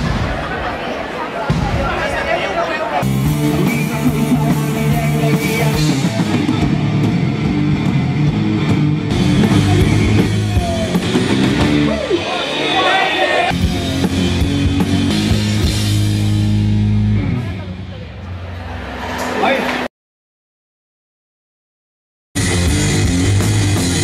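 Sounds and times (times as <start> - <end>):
electric guitar chords: 3.0 - 12.4, 13.5 - 19.3, 22.4 - 24.0
drum kit: 3.0 - 19.9, 22.4 - 24.0.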